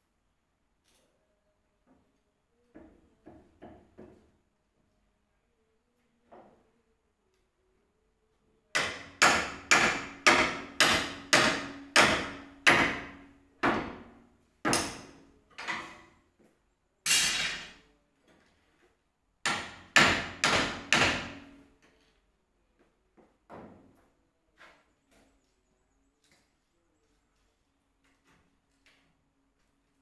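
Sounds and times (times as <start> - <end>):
hammer blows on window frame: 8.8 - 15.3, 19.4 - 21.6.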